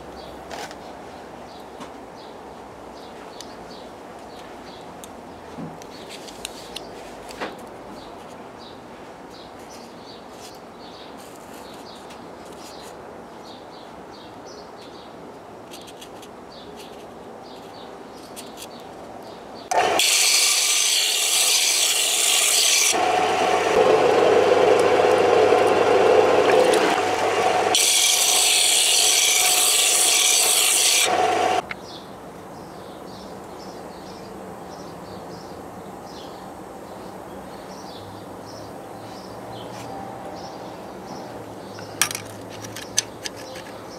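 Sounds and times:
disc sander grinding metal: 19.7s - 31.6s.

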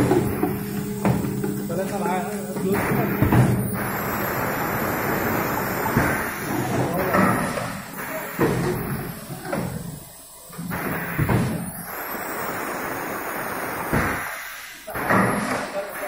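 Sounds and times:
people talking: 1.6s - 3.6s, 4.4s - 9.8s, 14.9s - 16.0s
machine thuds and knocks: 2.6s - 3.8s, 5.9s - 7.7s.

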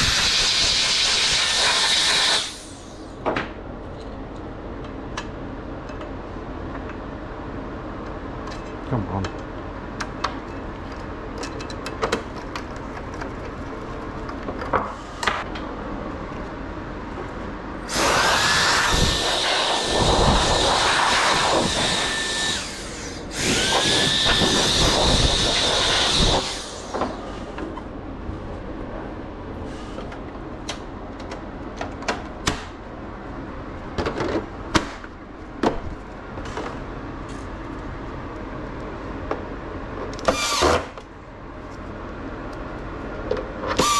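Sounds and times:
hiss of air: 0.0s - 3.0s, 17.9s - 27.6s
small tools clicking and tapping: 8.4s - 14.7s
small electric motor whining: 17.9s - 26.9s.

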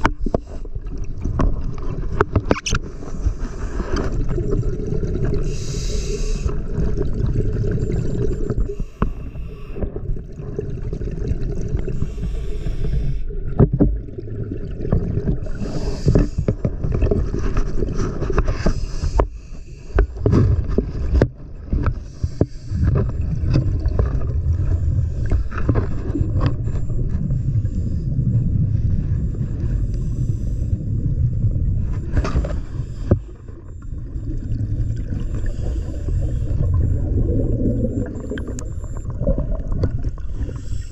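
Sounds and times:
exhaled bubbles gurgling: 0.0s - 40.9s
regulator inhalation hiss: 5.4s - 6.5s, 8.7s - 9.8s, 12.0s - 13.2s, 15.4s - 16.5s, 40.3s - 40.9s.

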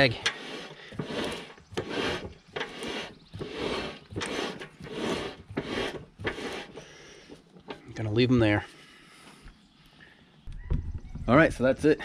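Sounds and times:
brake pads scraping on disc: 0.0s - 7.9s.

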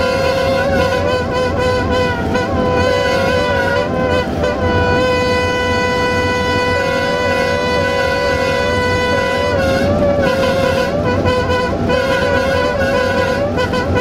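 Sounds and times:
locomotive air horn blast: 0.0s - 14.0s.

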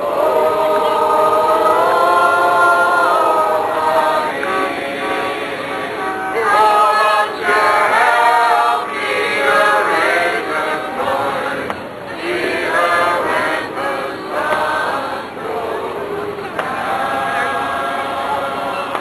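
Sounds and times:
group of voices singing: 0.0s - 19.0s.

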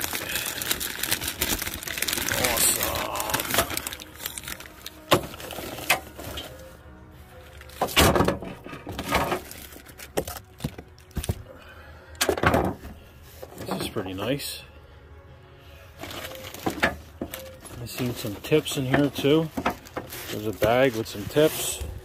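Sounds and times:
packaging rustling: 0.0s - 6.7s, 8.8s - 11.6s, 15.9s - 22.0s
faint background music: 0.0s - 22.0s.

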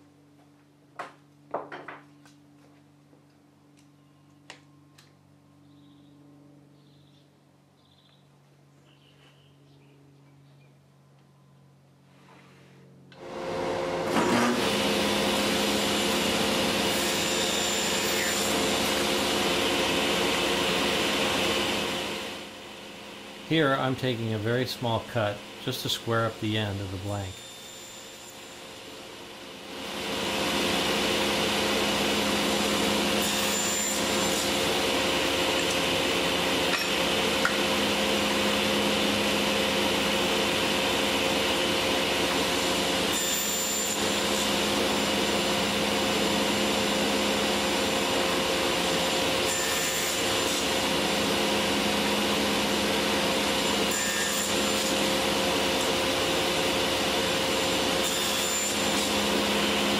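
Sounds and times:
table saw running: 13.2s - 59.9s
saw cutting aluminum: 14.0s - 22.5s, 25.2s - 29.0s, 29.6s - 59.9s.

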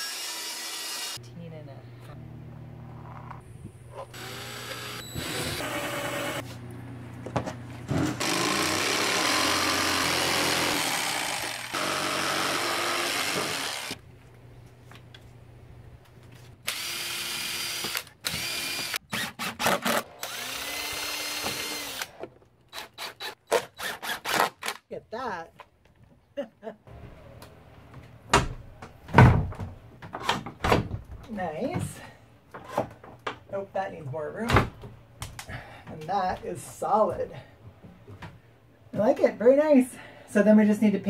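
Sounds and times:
jigsaw cutting wood: 0.0s - 1.2s, 4.1s - 6.4s, 8.1s - 14.0s, 16.7s - 24.8s
cordless drill driving screws: 4.1s - 6.4s, 8.2s - 14.0s, 16.7s - 24.8s.

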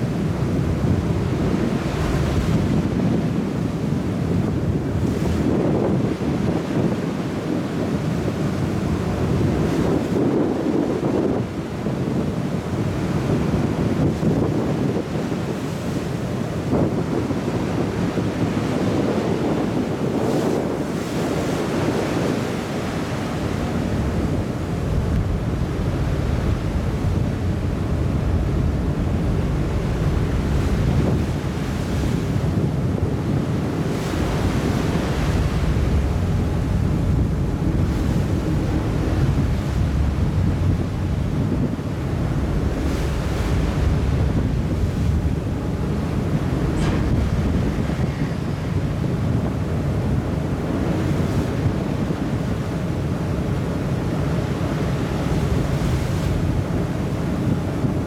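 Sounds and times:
rushing bow wave wash: 0.0s - 58.0s
wind buffeting microphone: 0.0s - 58.0s
steady low rumble: 24.0s - 31.9s, 35.2s - 50.4s.

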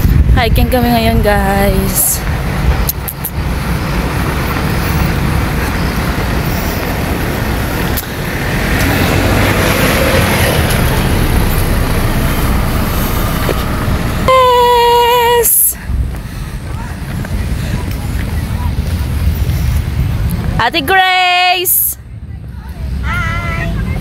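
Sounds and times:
road traffic passing: 0.0s - 24.0s.

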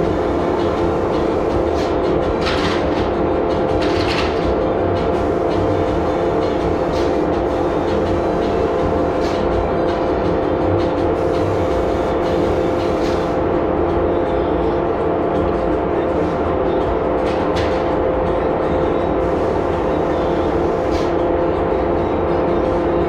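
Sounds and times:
air pump running: 0.0s - 13.6s, 19.2s - 21.2s
exhaust fan drone: 0.0s - 23.0s.

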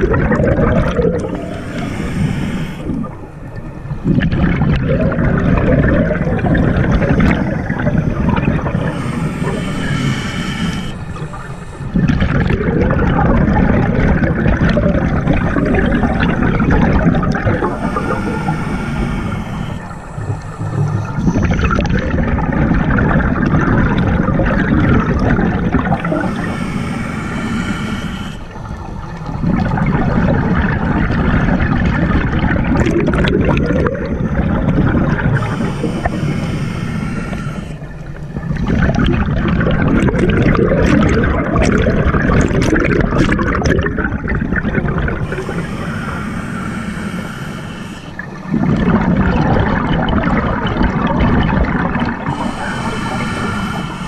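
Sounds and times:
bubbling exhaled air: 0.0s - 54.0s
regulator inhalation hiss: 1.2s - 4.0s, 6.6s - 12.2s, 15.1s - 21.8s, 25.8s - 28.7s, 34.7s - 38.3s, 45.2s - 48.7s, 51.9s - 54.0s.

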